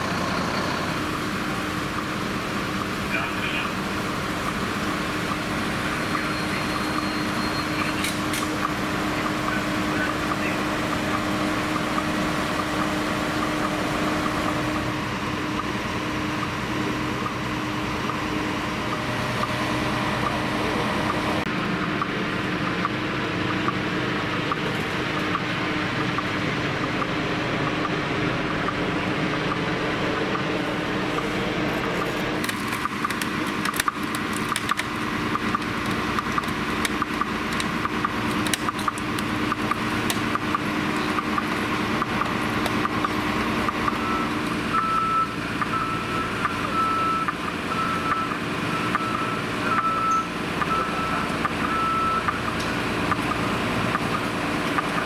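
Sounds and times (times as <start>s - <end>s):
distant helicopter flying: 0.0s - 55.0s
idling vehicle engines: 0.0s - 55.0s
sharp clicks and knocks: 32.0s - 44.6s.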